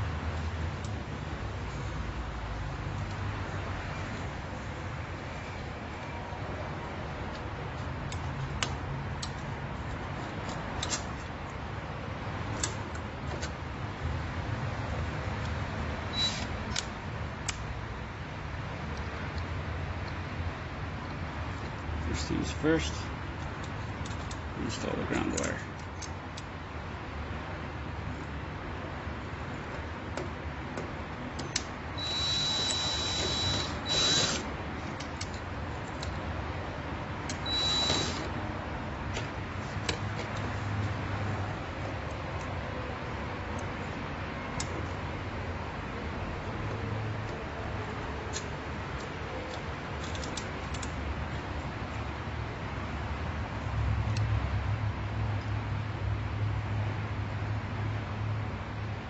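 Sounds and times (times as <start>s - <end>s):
cordless drill whining: 32.0s - 34.4s, 37.4s - 38.3s
light clicks of wire terminals: 48.3s - 52.0s, 54.0s - 54.3s.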